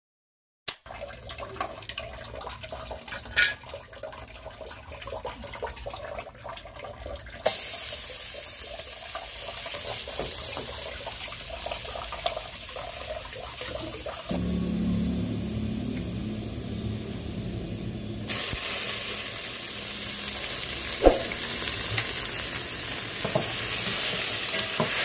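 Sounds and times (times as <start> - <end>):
garlic sizzling in hot oil: 7.4 - 25.0
sharp click: 21.0 - 21.4.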